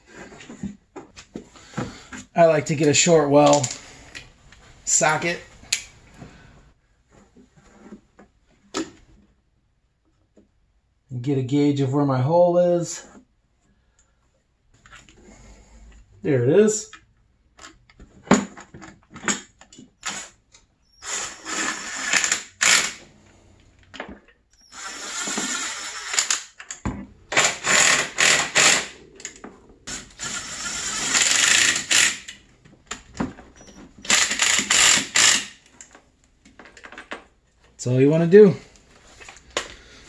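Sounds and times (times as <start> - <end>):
rapid ratchet clicking: 30.0 - 32.4, 34.1 - 35.6.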